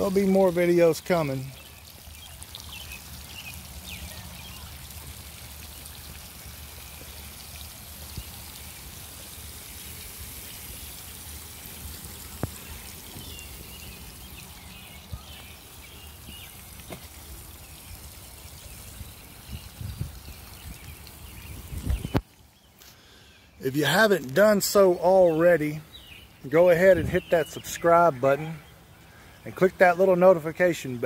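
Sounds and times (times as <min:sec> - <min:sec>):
water spraying and trickling: 0:00.0 - 0:31.0.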